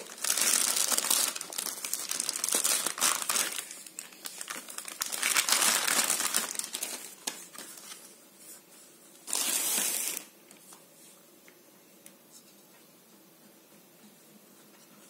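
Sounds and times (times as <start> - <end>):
plastic bag crinkling: 0.0 - 8.0, 9.2 - 10.3.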